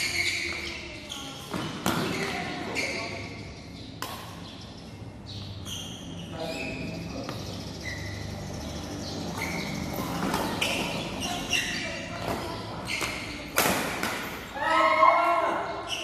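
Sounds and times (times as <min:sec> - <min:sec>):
shoes squeaking on court floor: 0:00.0 - 0:13.6
racket hitting shuttlecock: 0:04.0 - 0:04.4, 0:13.0 - 0:14.4.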